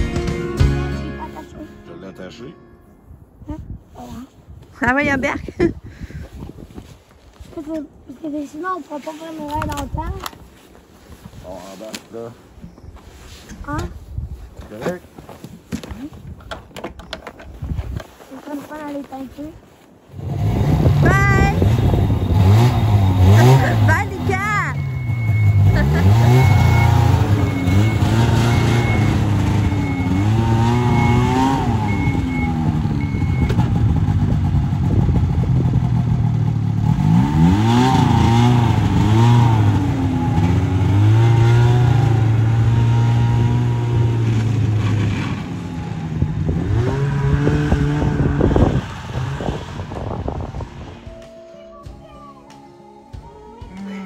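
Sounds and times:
snowmobile engine revving: 20.2s - 50.6s.

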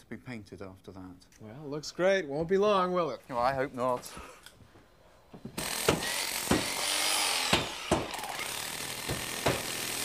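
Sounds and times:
sharp knocks: 5.4s - 6.8s, 7.5s - 8.2s, 9.0s - 9.7s
power tool whining: 5.6s - 10.0s.

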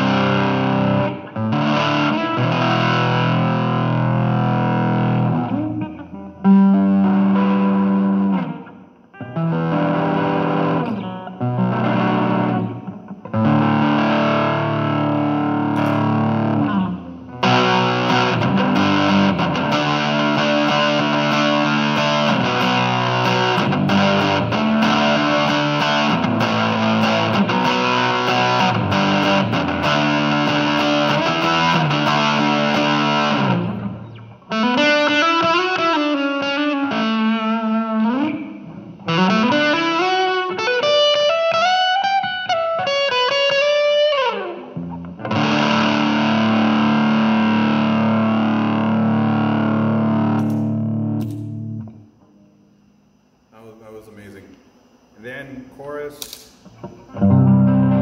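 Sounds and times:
electric guitar through amp: 0.0s - 52.5s, 56.2s - 58.0s.

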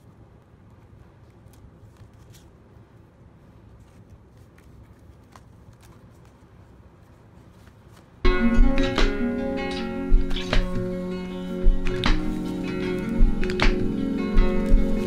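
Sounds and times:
low steady hum: 0.0s - 15.0s
notebook pages rustling: 0.8s - 2.8s, 3.6s - 8.2s, 11.9s - 15.0s.

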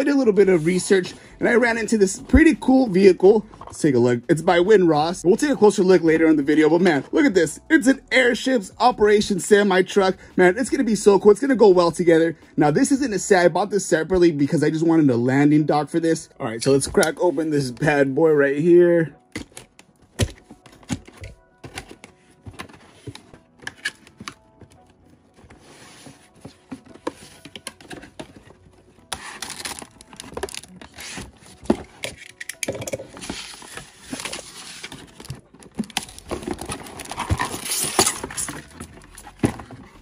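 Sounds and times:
quiet background music: 0.0s - 40.0s
cardboard and plastic rustling: 19.4s - 40.0s
cardboard packaging being cut: 29.1s - 31.4s, 35.8s - 38.7s.

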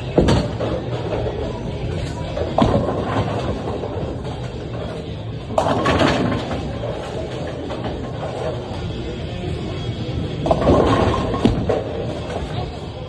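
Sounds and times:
bowling ball rolling on a lane: 0.0s - 12.9s
bowling pins crashing: 0.1s - 1.5s, 2.1s - 8.8s, 10.4s - 12.5s.

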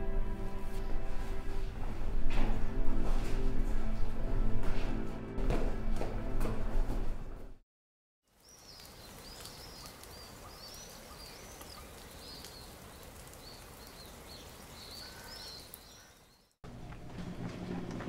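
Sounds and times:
small birds chirping: 8.3s - 16.6s.

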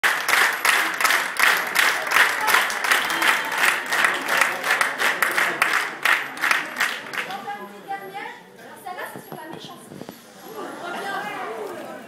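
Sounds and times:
people clapping in rhythm: 0.0s - 7.4s.

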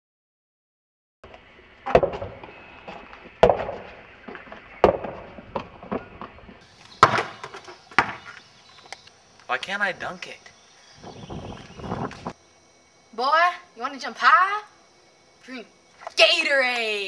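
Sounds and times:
basketball dribbling thuds: 1.9s - 8.4s.

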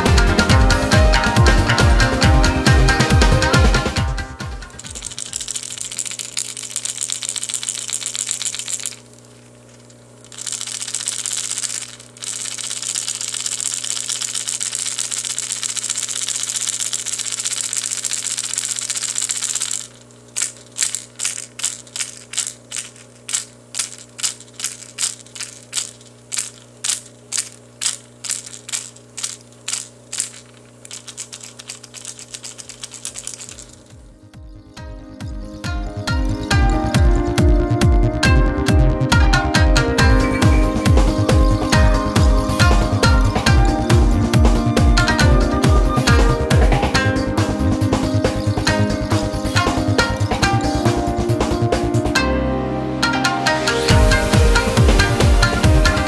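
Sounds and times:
lure rattle clattering: 4.6s - 34.1s, 46.0s - 51.7s.

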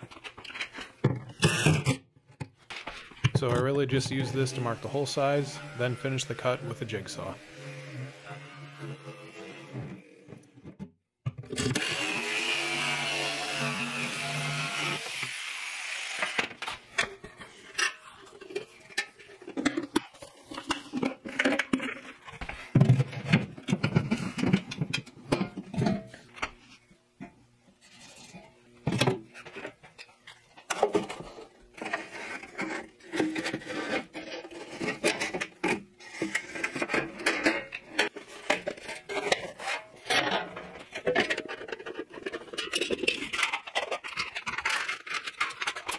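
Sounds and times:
jigsaw cutting plywood: 11.5s - 16.6s.

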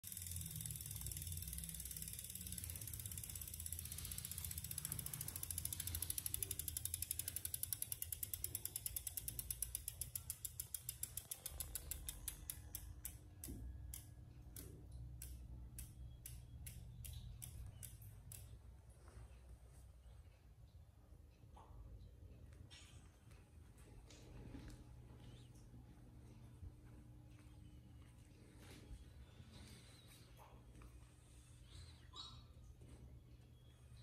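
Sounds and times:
bicycle freewheel ratchet ticking: 0.0s - 18.5s.

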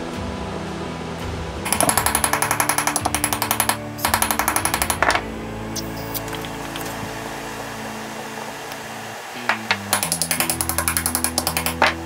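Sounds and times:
hammer tapping on steel tube: 9.7s - 12.0s.

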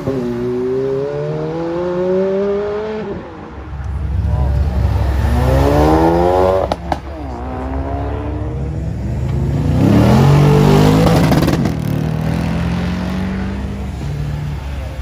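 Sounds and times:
car engine revving past: 4.1s - 14.1s
exhaust bangs: 4.2s - 8.6s.

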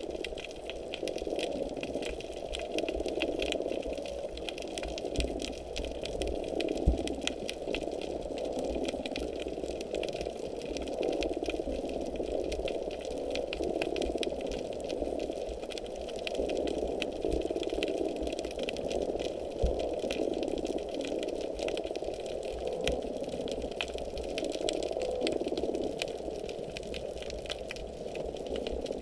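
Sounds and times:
faint clicks: 0.0s - 29.0s.

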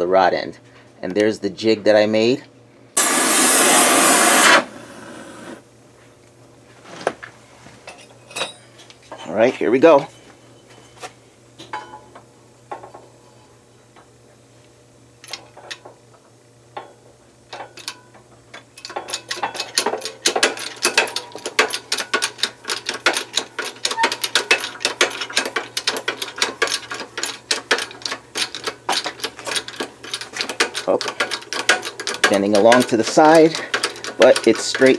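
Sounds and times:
press pump clanking: 18.9s - 34.9s.

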